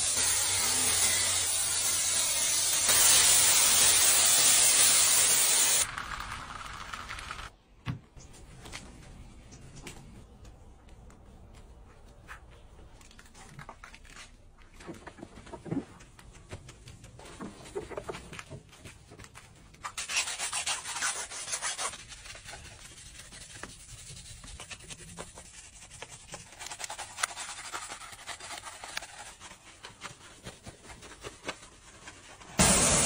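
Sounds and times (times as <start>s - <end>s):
pressure washer jet hissing: 0.0s - 5.9s, 32.6s - 33.0s
brush and sponge scrubbing: 19.9s - 32.6s.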